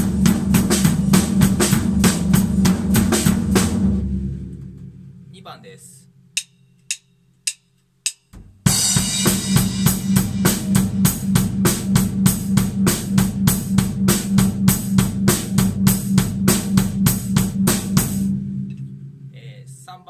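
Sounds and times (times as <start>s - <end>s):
drum kit playing a groove: 0.0s - 20.0s
drumstick clicks counting in: 6.4s - 8.3s.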